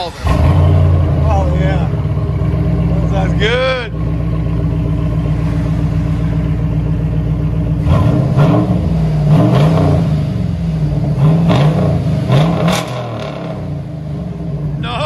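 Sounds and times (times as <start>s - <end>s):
car engine idling and revving: 0.0s - 15.0s.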